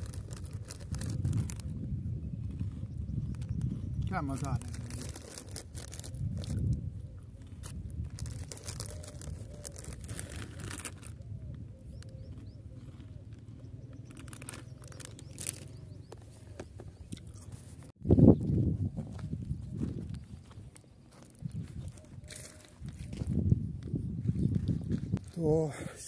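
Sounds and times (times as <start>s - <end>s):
foil snack packet rustling: 0.0s - 1.6s, 4.2s - 6.7s, 8.1s - 11.2s, 14.1s - 15.7s
crunchy snack being chewed: 0.0s - 17.7s, 19.8s - 25.4s.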